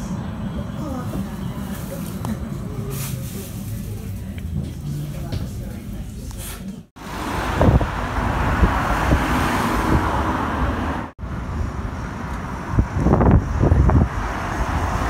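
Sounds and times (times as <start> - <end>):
road traffic: 0.0 - 15.0
wind thumping on microphone: 7.4 - 10.8, 11.4 - 15.0.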